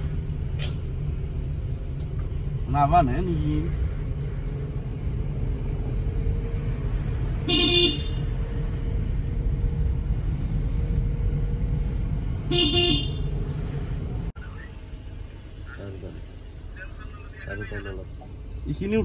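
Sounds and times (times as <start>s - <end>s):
car engine and road noise: 0.0s - 19.0s
car horn honks: 7.4s - 8.3s, 12.5s - 13.3s.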